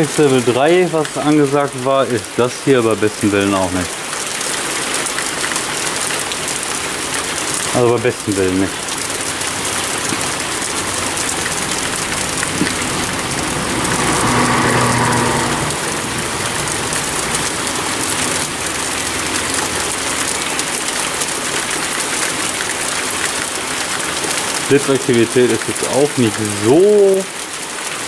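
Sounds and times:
heavy rain falling: 0.0s - 28.0s
vehicle passing: 5.9s - 24.2s.

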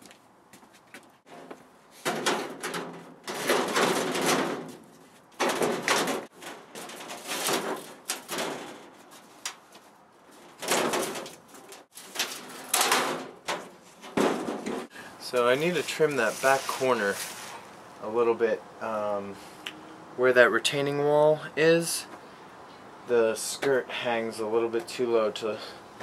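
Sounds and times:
metal sheeting scraping and rattling: 1.3s - 17.7s.

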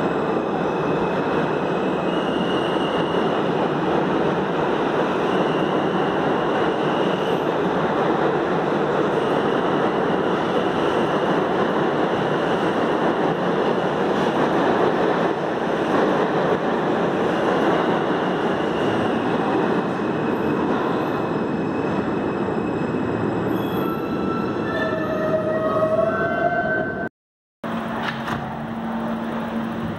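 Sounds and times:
subway train rumble: 0.0s - 29.9s
train wheel squeal: 0.6s - 3.4s, 5.1s - 7.5s, 9.1s - 11.2s, 17.9s - 19.3s, 20.3s - 27.1s.

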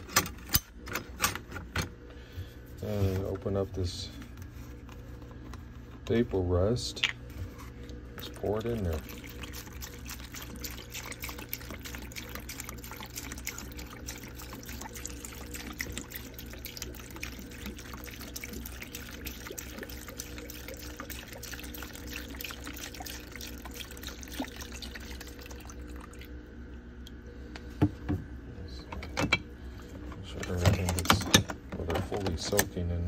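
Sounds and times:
liquid pouring into plastic tub: 8.2s - 27.2s.

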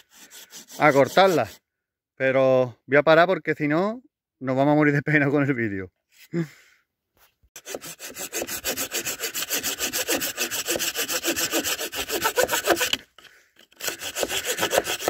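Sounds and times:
hand saw cutting branch: 0.0s - 1.6s, 7.6s - 15.0s.

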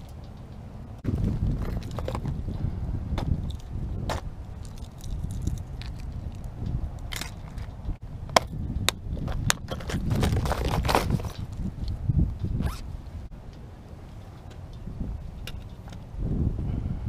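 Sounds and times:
rustling and scraping: 0.0s - 8.0s, 9.1s - 13.3s.

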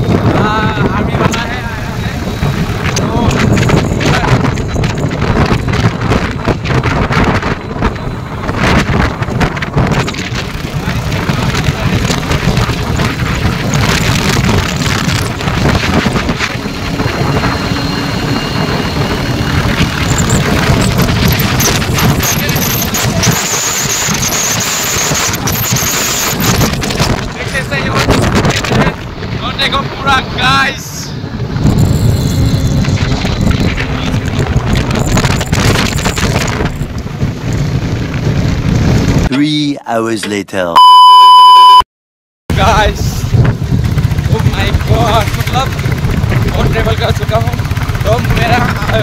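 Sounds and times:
trucks passing: 0.0s - 27.7s, 28.8s - 39.2s
motorcycle engine and road noise: 0.0s - 39.3s, 42.5s - 49.0s
wind rumble on microphone: 0.0s - 39.3s, 42.5s - 49.0s.

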